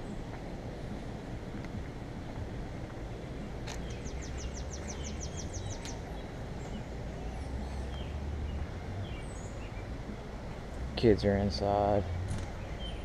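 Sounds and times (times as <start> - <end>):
songbird trilling: 3.8 - 9.9
bird chirps: 3.8 - 10.0, 12.0 - 13.0.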